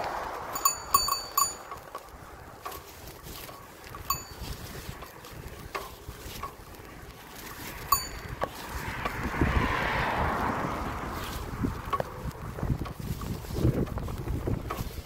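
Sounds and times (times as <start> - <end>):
metallic bicycle clicks: 0.0 - 9.2
wind rumble on microphone: 0.0 - 15.0
rush of noise: 7.6 - 12.4.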